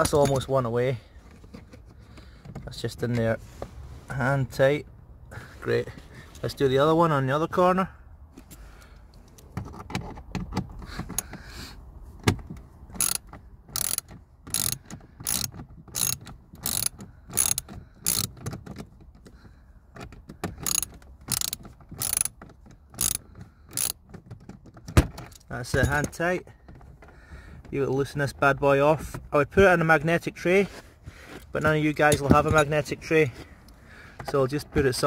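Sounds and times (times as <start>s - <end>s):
hand ratchet clicking: 12.9s - 19.4s, 20.0s - 24.1s.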